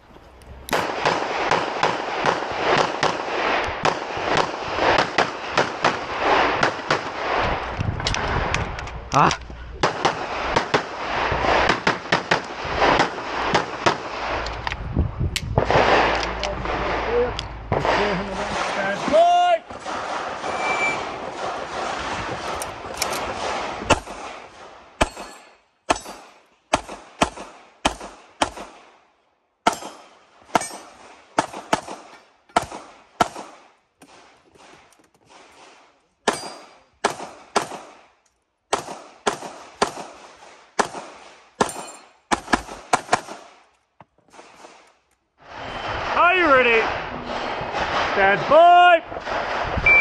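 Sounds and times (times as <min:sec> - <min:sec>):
steady rushing noise: 0:00.0 - 0:24.8
pistol shots: 0:00.7 - 0:07.2, 0:09.8 - 0:14.2, 0:17.7 - 0:28.9, 0:29.6 - 0:43.6.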